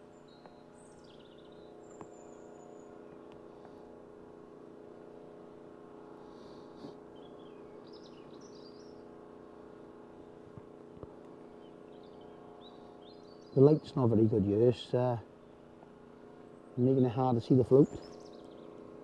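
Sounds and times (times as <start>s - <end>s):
steady low hum: 0.0s - 19.0s
small bird chirps: 0.1s - 3.2s, 7.1s - 9.1s, 11.6s - 14.0s, 17.8s - 18.8s.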